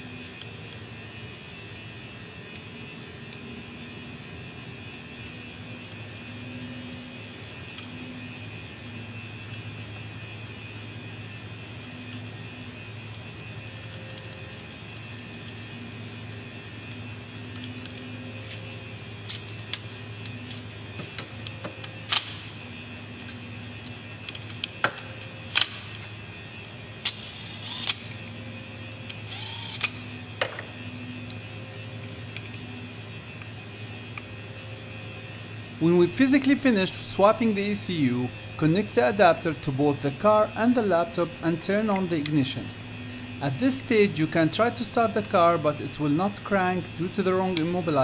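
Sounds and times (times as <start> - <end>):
tools and connectors clicking: 0.0 - 2.7, 4.9 - 11.0, 11.6 - 22.5, 23.1 - 33.5, 47.2 - 47.9
steady low hum: 0.0 - 48.0.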